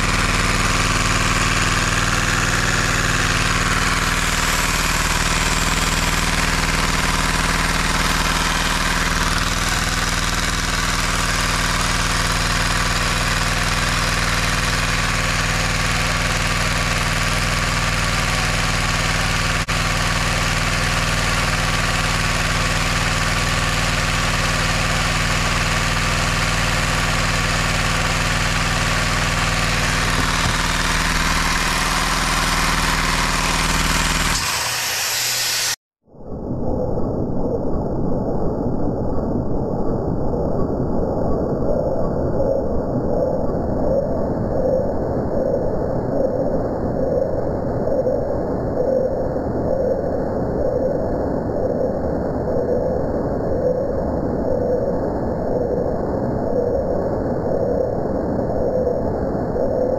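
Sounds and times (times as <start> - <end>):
small engine running fast: 0.0 - 35.8.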